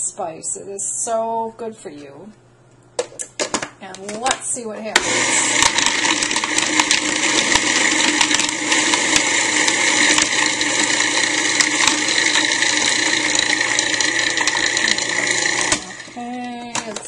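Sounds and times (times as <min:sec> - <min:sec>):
food processor chopping: 0:05.0 - 0:16.2.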